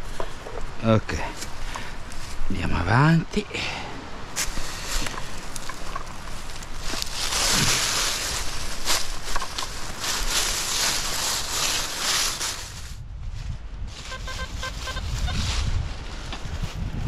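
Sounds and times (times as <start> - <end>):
rustling: 4.3 - 17.0
metal detector beeping: 14.1 - 15.1.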